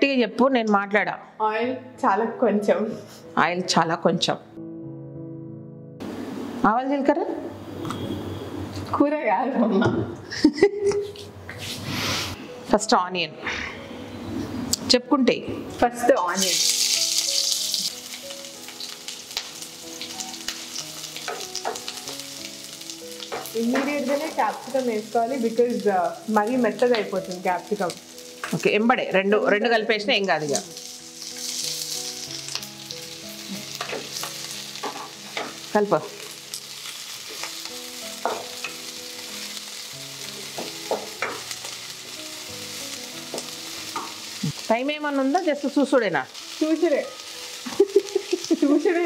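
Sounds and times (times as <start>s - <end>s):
onions sizzling in oil: 15.7s - 49.0s.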